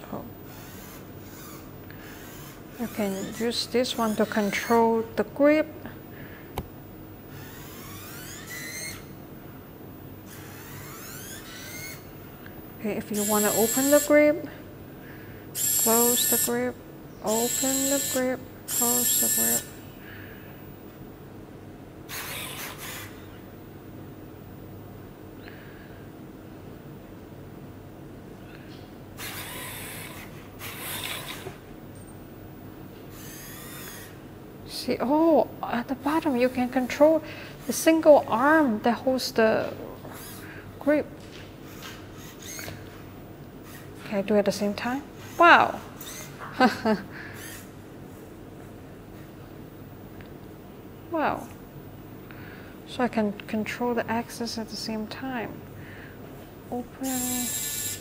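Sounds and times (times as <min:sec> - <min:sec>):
robot servo motors whirring: 0:10.3 - 0:12.0, 0:22.1 - 0:23.1, 0:29.2 - 0:31.6, 0:33.1 - 0:34.1, 0:41.7 - 0:42.7, 0:46.0 - 0:46.3, 0:57.0 - 0:58.0.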